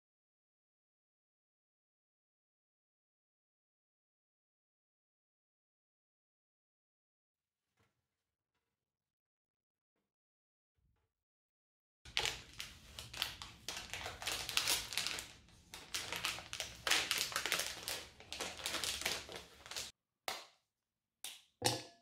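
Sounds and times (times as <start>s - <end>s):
wrapper crinkling and rustling: 12.1s - 19.9s.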